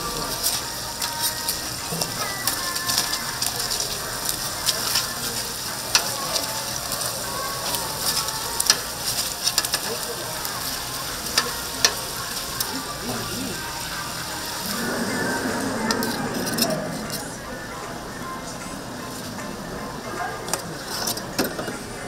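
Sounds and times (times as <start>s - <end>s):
meat patties sizzling with pops: 0.0s - 14.8s.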